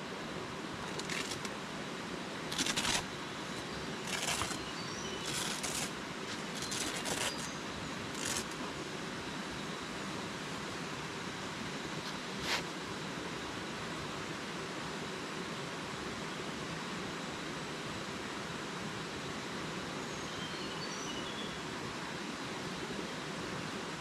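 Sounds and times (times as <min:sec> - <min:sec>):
tent door unzipping: 0:00.9 - 0:01.5, 0:02.5 - 0:03.0, 0:04.0 - 0:04.6, 0:05.2 - 0:07.5, 0:08.1 - 0:08.6
tent fabric rustling: 0:00.9 - 0:01.5, 0:02.5 - 0:03.0, 0:05.2 - 0:07.5, 0:08.1 - 0:08.6.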